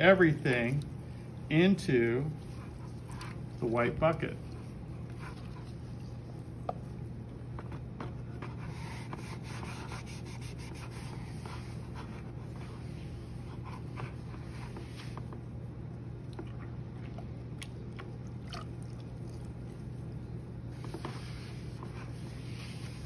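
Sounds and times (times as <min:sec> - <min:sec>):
low steady hum: 0:00.0 - 0:23.0
clay slurry scraping: 0:00.1 - 0:15.4, 0:20.7 - 0:23.0.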